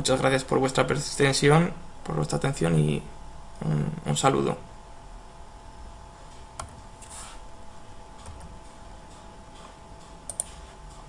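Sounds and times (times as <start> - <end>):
faint steady hum: 0.0 - 11.0
soft computer clicks: 8.2 - 11.0.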